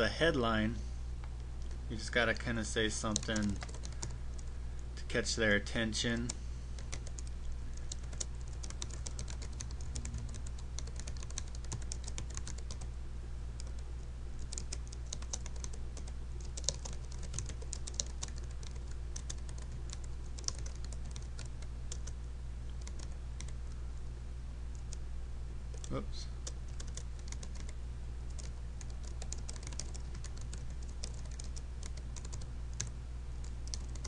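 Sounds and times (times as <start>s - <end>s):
steady low hum: 0.0s - 34.0s
typing on computer keyboard: 3.1s - 4.1s, 6.8s - 12.9s, 14.4s - 22.2s, 22.8s - 23.6s, 25.7s - 32.9s, 33.6s - 34.0s.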